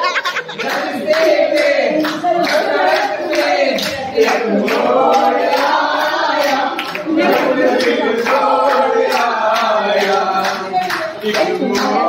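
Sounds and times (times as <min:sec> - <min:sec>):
group clapping in rhythm: 0:00.0 - 0:12.0
voices singing along: 0:00.0 - 0:12.0.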